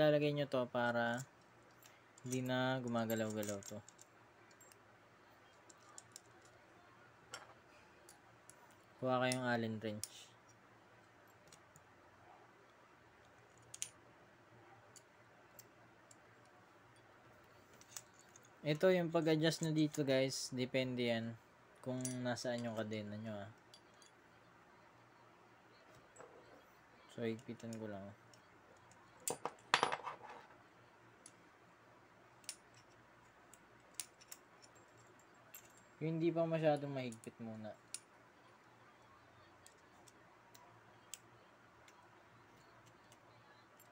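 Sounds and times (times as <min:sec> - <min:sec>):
allen key clicking on screw: 0:32.4 - 0:35.9.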